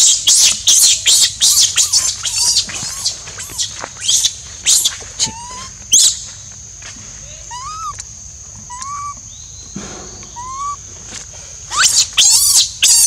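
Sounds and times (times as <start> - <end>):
baby monkey screaming: 0.0 - 6.2, 7.3 - 9.2, 10.2 - 10.8, 11.7 - 13.0.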